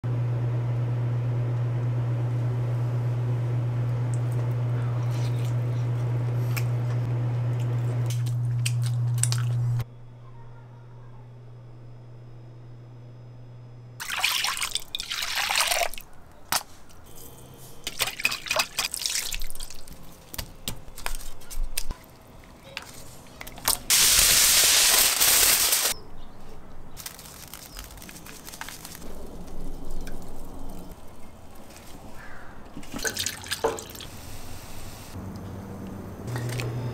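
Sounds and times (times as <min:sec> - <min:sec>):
liquid pouring and splashing: 0:14.0 - 0:16.1, 0:17.9 - 0:20.0, 0:32.8 - 0:34.2.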